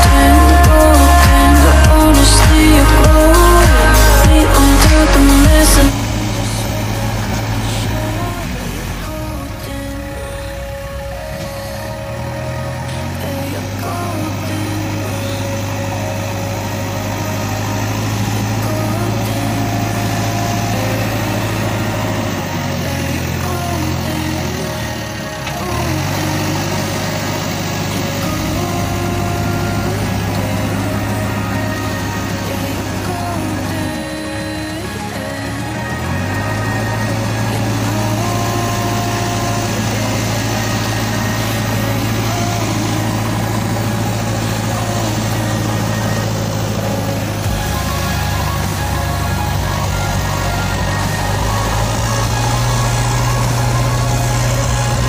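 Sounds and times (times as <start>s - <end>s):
low engine-like drone: 0.0s - 55.0s
low motor hum: 0.0s - 55.0s.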